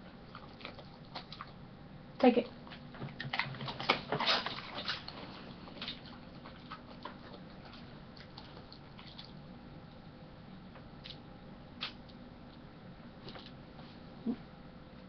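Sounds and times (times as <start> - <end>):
dog crunching a treat: 0.2 - 1.6, 2.5 - 9.4.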